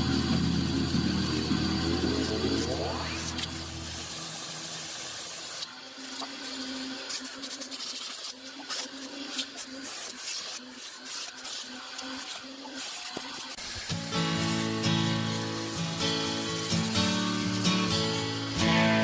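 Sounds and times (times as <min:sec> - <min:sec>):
brush scrubbing upholstery: 0:06.6 - 0:14.8.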